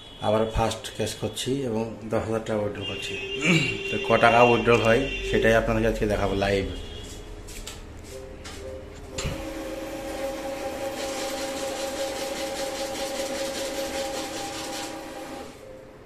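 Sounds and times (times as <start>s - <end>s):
cash machine click: 9.2s - 15.6s
banknotes fluttering: 10.8s - 15.0s.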